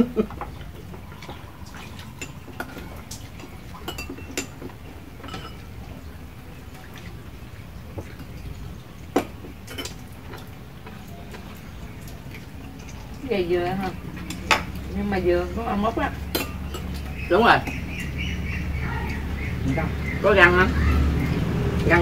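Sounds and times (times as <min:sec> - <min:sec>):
cutlery clinking against bowls: 0:00.0 - 0:06.0, 0:09.1 - 0:13.2, 0:14.0 - 0:18.2.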